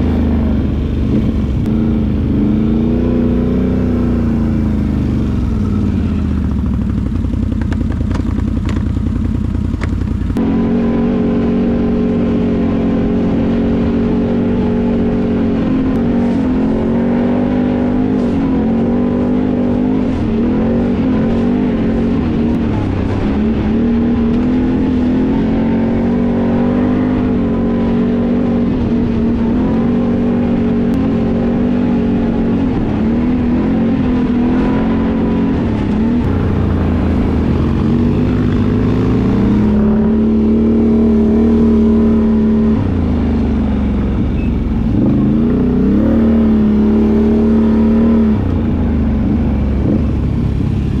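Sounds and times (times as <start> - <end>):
atv engine running: 0.0 - 51.0
tyre and trail noise: 0.0 - 51.0.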